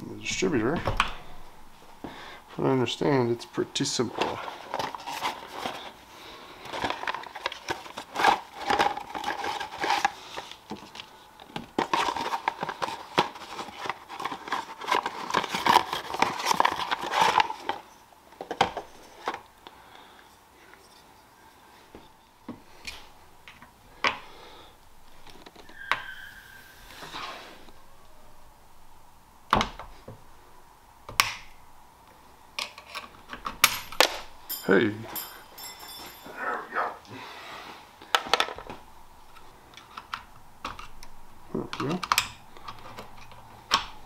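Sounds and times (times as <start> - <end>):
packaging crinkling and rustling: 4.0 - 19.6.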